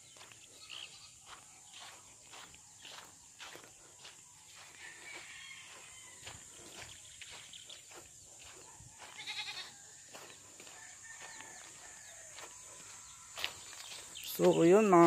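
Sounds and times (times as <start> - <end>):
footsteps on straw and leaves: 0.0 - 15.0
quavering animal call: 9.0 - 9.8.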